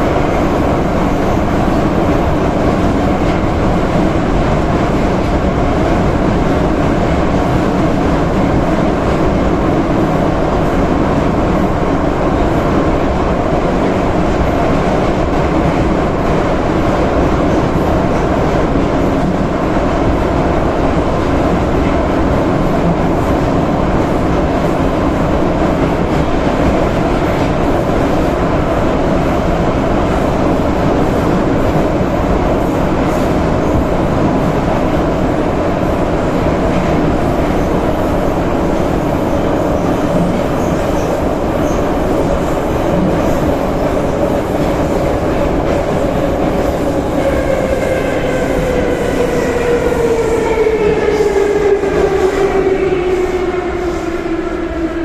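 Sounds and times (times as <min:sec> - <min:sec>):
train wheels on rails: 0:00.0 - 0:55.0.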